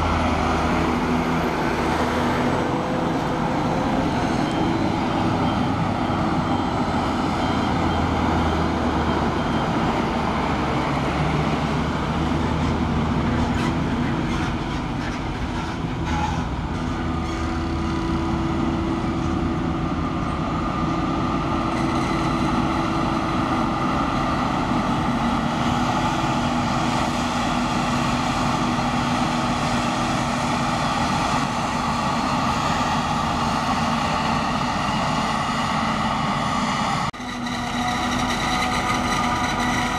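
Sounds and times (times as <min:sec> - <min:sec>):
forage harvester machine drone: 0:00.0 - 0:39.9.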